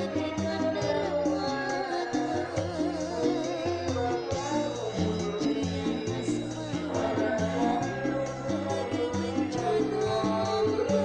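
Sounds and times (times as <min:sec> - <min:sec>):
bass line: 0:00.0 - 0:11.0
keyboard band music: 0:00.0 - 0:11.0.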